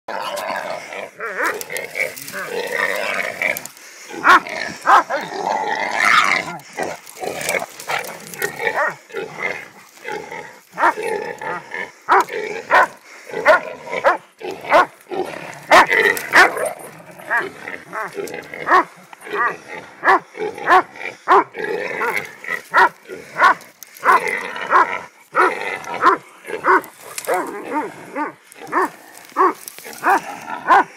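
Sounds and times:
hog squealing: 0:00.2 - 0:08.9
dogs barking: 0:01.2 - 0:03.4, 0:04.1 - 0:09.1, 0:10.7 - 0:15.0, 0:15.6 - 0:30.9.

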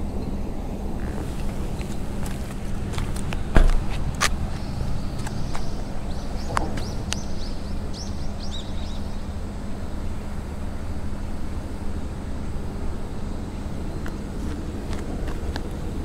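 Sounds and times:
distant road traffic rumble: 0:00.0 - 0:16.0
bird chirping: 0:04.4 - 0:09.4.

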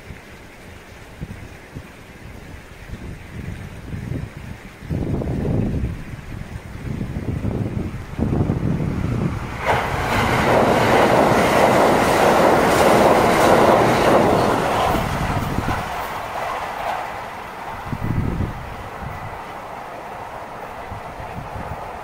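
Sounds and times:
wind buffeting microphone: 0:00.0 - 0:22.0
electric train passing: 0:05.5 - 0:22.0.

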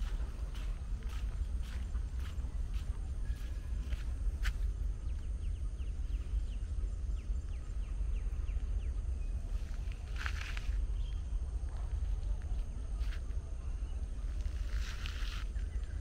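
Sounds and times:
footstep clicks: 0:00.0 - 0:04.7
low rumble: 0:00.0 - 0:16.0.

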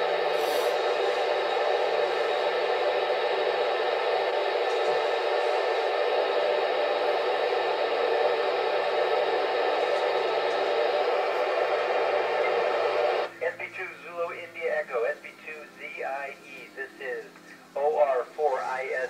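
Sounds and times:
radio static hiss: 0:00.0 - 0:19.0.

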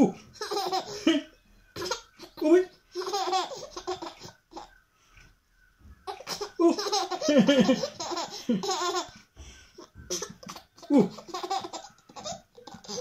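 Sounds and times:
toddler girl laughing: 0:06.1 - 0:09.1, 0:09.8 - 0:13.0.

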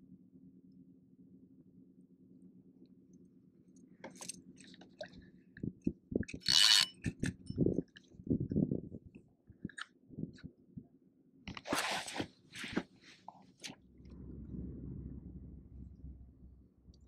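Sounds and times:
fishing reel clicks and knocks: 0:05.8 - 0:07.6.

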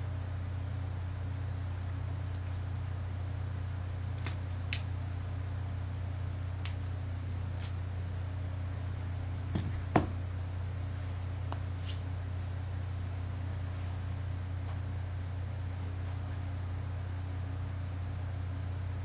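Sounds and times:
steady low hum: 0:00.0 - 0:19.0
elastic bandage clicks and crinkles: 0:04.0 - 0:05.2, 0:07.5 - 0:07.8.

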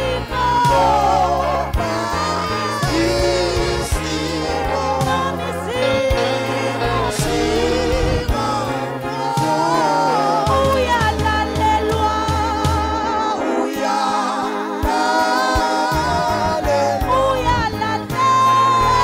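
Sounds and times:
low instrumental accompaniment: 0:00.0 - 0:19.0
woman singing worship song: 0:00.0 - 0:19.0.

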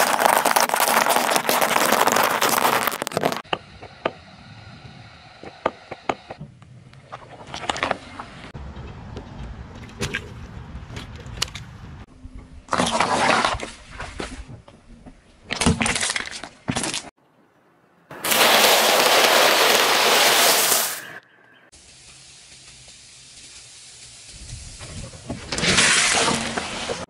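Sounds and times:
tyre crushing crunchy snacks: 0:00.0 - 0:03.4, 0:18.2 - 0:21.0
loud hiss: 0:18.1 - 0:21.2, 0:21.8 - 0:25.2.

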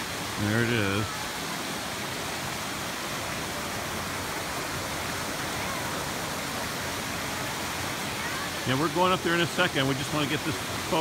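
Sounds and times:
stream rushing over boulders: 0:00.0 - 0:11.0.

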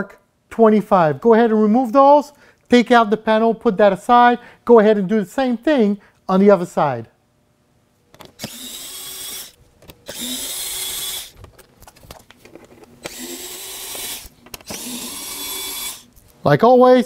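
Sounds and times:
electric screwdriver running: 0:08.4 - 0:11.4, 0:13.0 - 0:16.1.

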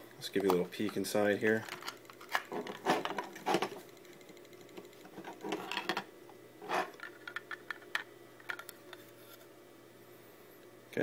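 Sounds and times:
plastic case clicking and rattling: 0:00.4 - 0:03.8, 0:06.9 - 0:08.7.

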